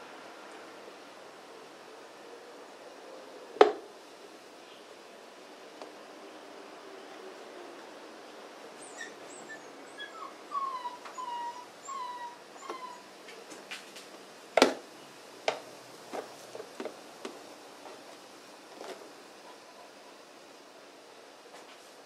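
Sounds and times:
dog whimpering: 0:08.8 - 0:13.2.

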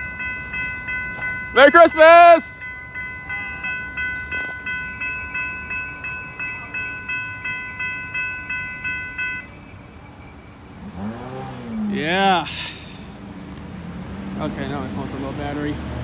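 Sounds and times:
railroad crossing bell ringing: 0:00.0 - 0:13.2
passing train rumble: 0:00.0 - 0:16.0.

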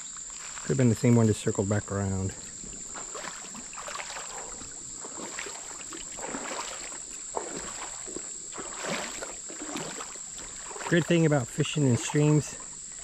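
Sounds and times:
high insect trill: 0:00.0 - 0:13.0
water sloshing from wading: 0:00.2 - 0:13.0.

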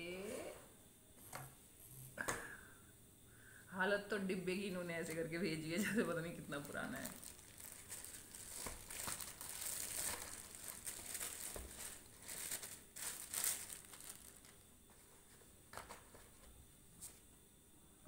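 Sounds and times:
plastic wrapping crinkling: 0:05.9 - 0:16.2
paper sheets handled: 0:06.6 - 0:17.2.

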